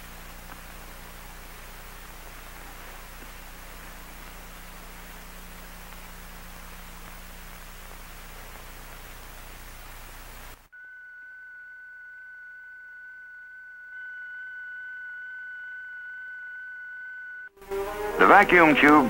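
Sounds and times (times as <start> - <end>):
film soundtrack hiss: 0.0 - 19.0
low hum: 0.0 - 19.0
fainter higher tone: 10.7 - 19.0
steady high-pitched tone: 10.7 - 19.0.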